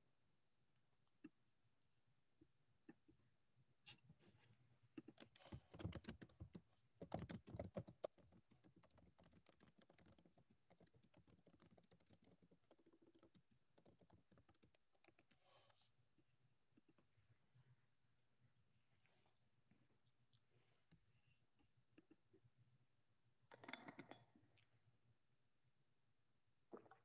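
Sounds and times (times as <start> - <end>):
typing on computer keyboard: 5.0 - 15.8.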